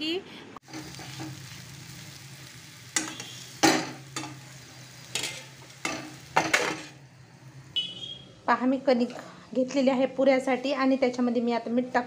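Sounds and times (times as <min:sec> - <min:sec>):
spatula scraping frying pan: 0:00.6 - 0:01.6, 0:03.0 - 0:07.0
oil sizzling: 0:00.6 - 0:08.2.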